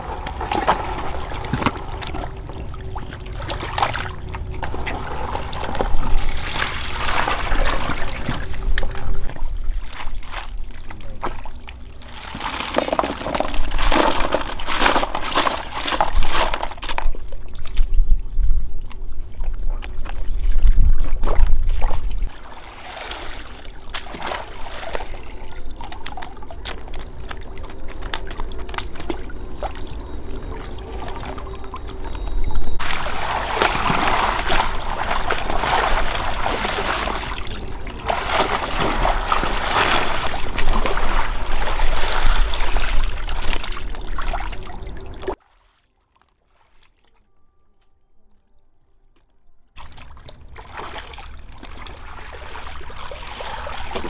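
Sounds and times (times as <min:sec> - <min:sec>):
water splashing and sloshing: 0:00.0 - 0:47.4, 0:49.2 - 0:54.0
water pouring: 0:22.3 - 0:45.4.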